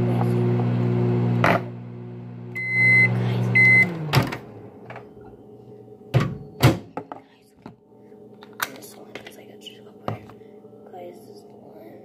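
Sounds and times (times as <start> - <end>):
microwave oven humming: 0.0 - 7.0
microwave beeping: 2.3 - 6.9.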